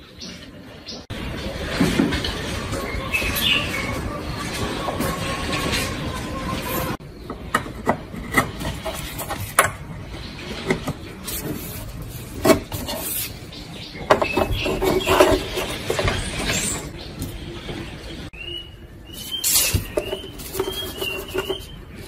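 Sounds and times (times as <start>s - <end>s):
rubbing and scraping on metal case: 8.1s - 9.6s, 10.7s - 13.4s, 14.1s - 17.0s, 19.3s - 22.0s.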